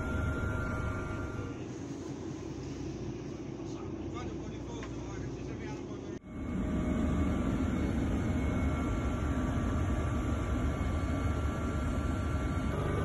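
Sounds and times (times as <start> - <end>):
faint whining tones: 0.0 - 13.0
aircraft engines droning: 3.1 - 13.0.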